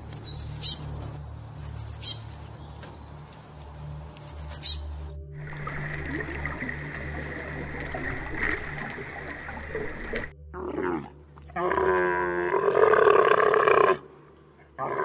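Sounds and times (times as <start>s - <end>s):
camel grunting: 10.5s - 14.0s.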